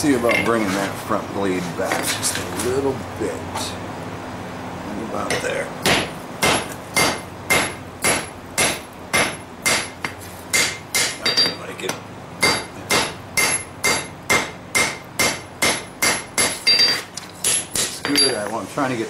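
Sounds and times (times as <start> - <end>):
hammer striking steel on anvil: 5.3 - 18.6.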